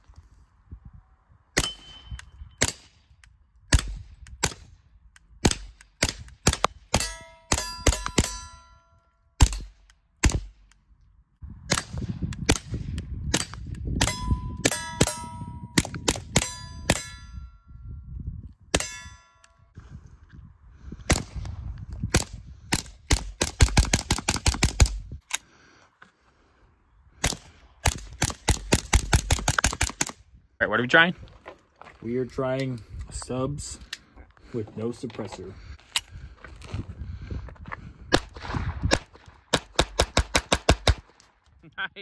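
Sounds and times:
short metallic ring: 7.0 - 9.2, 14.0 - 15.8, 16.4 - 18.0, 18.8 - 19.7
suppressed pistol shots: 9.4 - 10.8.

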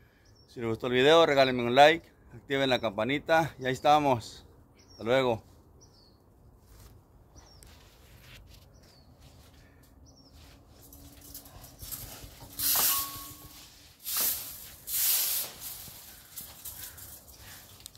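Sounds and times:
rake scraping across paving: 10.3 - 17.9.

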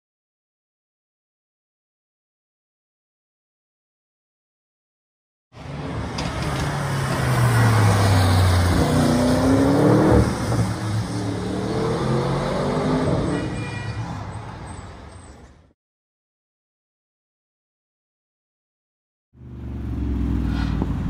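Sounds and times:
car engine accelerating hard: 6.8 - 13.2.

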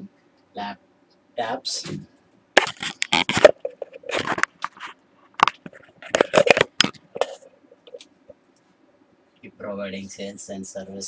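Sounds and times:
faint steady hum: 0.0 - 11.0
crackling and crinkling rustles: 2.6 - 8.1.

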